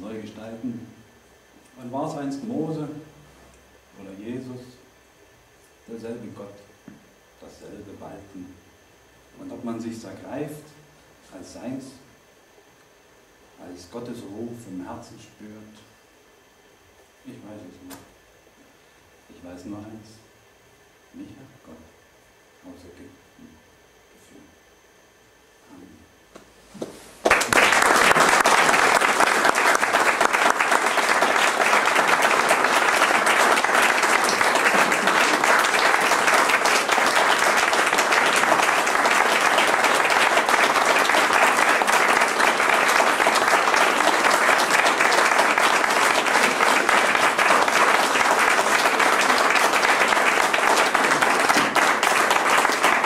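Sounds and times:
audience applauding: 0:27.2 - 0:53.0.

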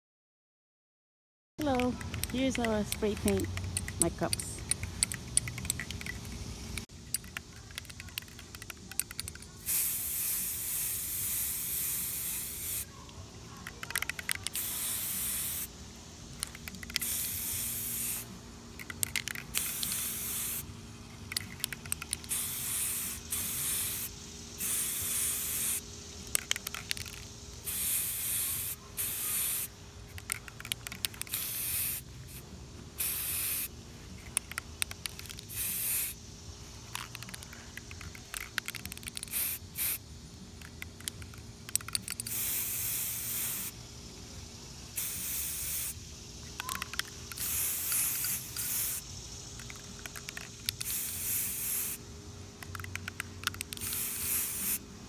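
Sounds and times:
spray can hissing: 0:01.6 - 0:13.0, 0:13.6 - 0:52.0, 0:52.6 - 0:54.8.

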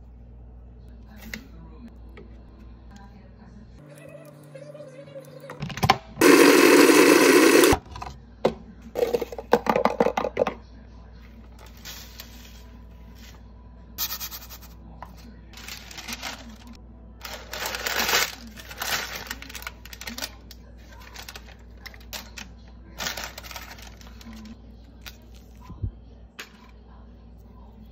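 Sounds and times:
paper rustling: 0:11.5 - 0:13.4, 0:15.6 - 0:25.6.

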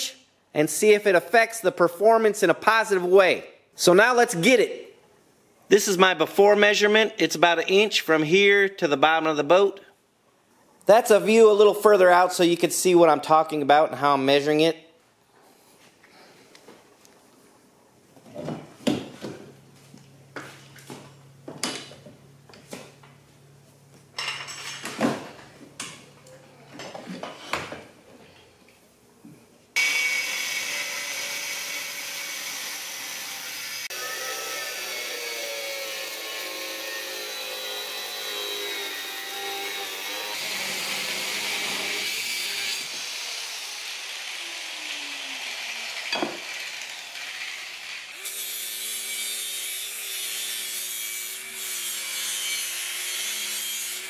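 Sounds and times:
cut-off wheel cutting metal: 0:29.8 - 0:54.0
rotary tool grinding metal: 0:29.8 - 0:54.0.

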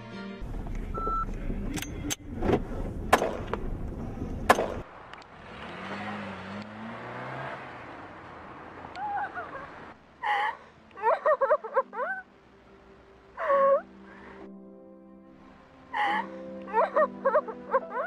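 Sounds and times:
pistol shots: 0:04.5 - 0:04.8.

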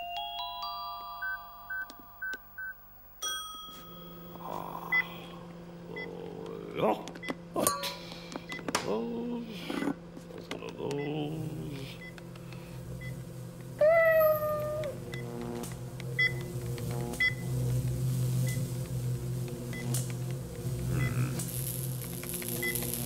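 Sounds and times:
microwave oven humming: 0:03.2 - 0:23.0
cat meowing: 0:13.8 - 0:15.0.

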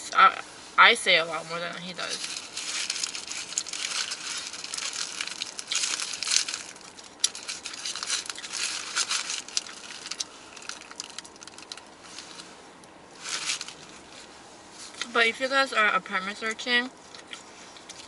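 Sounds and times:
paper wrapper crinkling: 0:01.8 - 0:12.5, 0:13.2 - 0:14.3
crunchy chewing: 0:02.0 - 0:15.1, 0:16.9 - 0:18.0.

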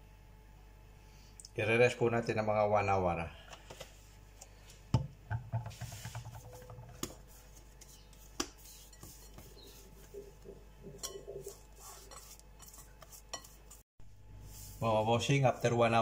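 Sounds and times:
hands handling bread dough: 0:05.6 - 0:13.8.

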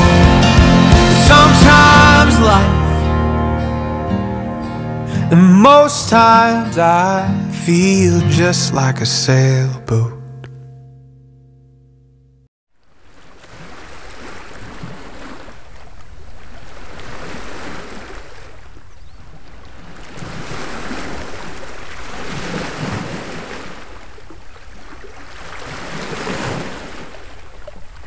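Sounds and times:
small waves against rocky shore: 0:12.9 - 0:28.0.

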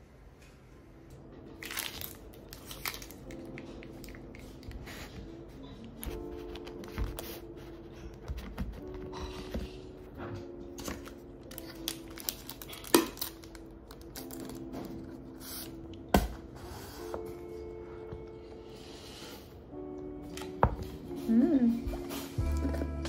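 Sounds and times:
soft background music: 0:00.0 - 0:23.0.

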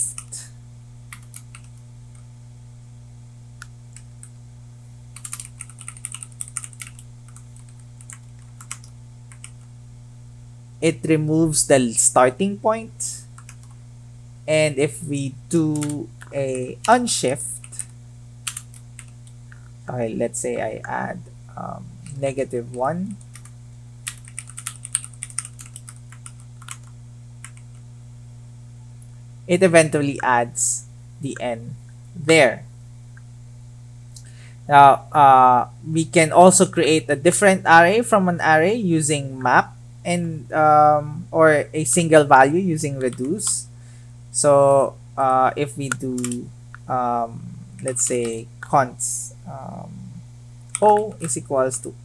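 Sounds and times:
keyboard typing: 0:00.0 - 0:00.3, 0:01.1 - 0:01.8, 0:05.2 - 0:09.7, 0:13.4 - 0:13.8, 0:15.7 - 0:17.0, 0:17.6 - 0:19.3, 0:22.0 - 0:27.8, 0:42.9 - 0:43.6, 0:45.2 - 0:46.5
steady low hum: 0:00.0 - 0:52.0.

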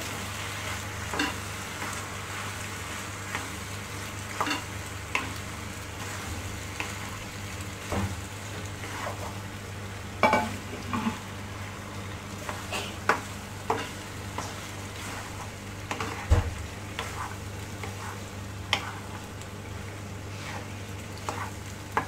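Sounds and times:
oil sizzling in a pan: 0:00.0 - 0:22.0
spatula scraping a pan: 0:12.4 - 0:16.3, 0:17.0 - 0:19.3, 0:20.3 - 0:21.6.

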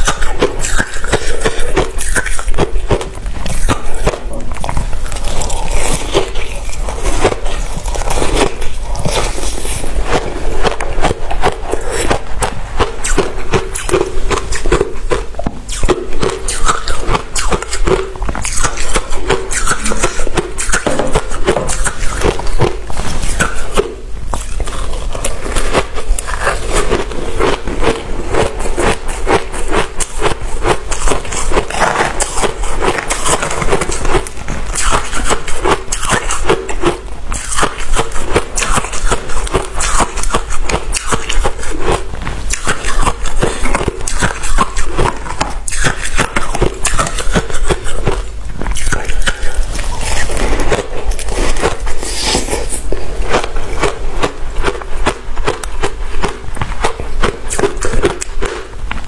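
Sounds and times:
frost being chewed crunching: 0:00.0 - 0:59.0.

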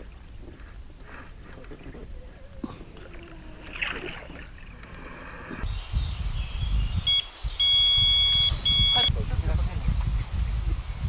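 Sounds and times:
flowing river water: 0:00.0 - 0:05.6
wind: 0:00.0 - 0:11.0
bite alarm beep: 0:07.1 - 0:09.1.

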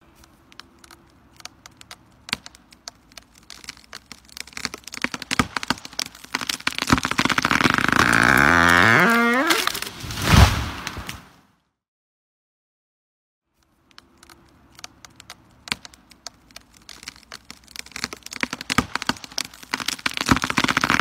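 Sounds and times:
wood cracking and splintering: 0:00.1 - 0:10.1, 0:13.6 - 0:21.0
long creak rising in pitch: 0:07.4 - 0:09.9.

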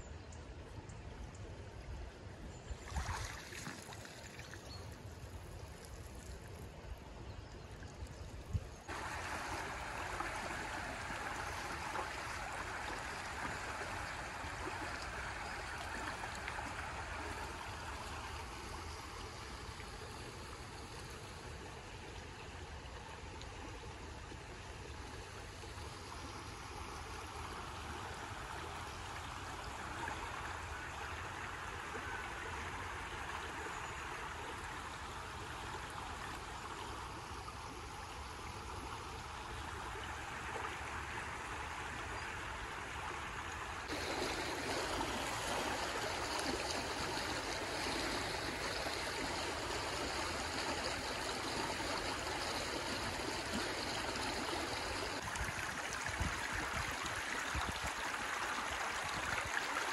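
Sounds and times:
river rushing over stones: 0:08.9 - 0:18.7, 0:43.9 - 0:59.9.

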